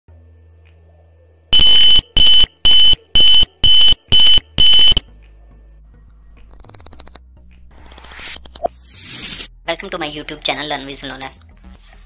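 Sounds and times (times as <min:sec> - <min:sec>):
piezo buzzer beeping: 0:01.6 - 0:05.0.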